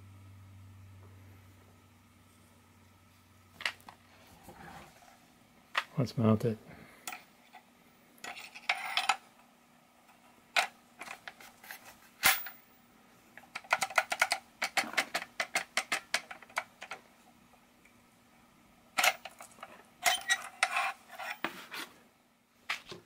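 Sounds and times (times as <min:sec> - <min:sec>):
metal clinks and scrapes: 0:08.2 - 0:09.2, 0:19.0 - 0:21.5.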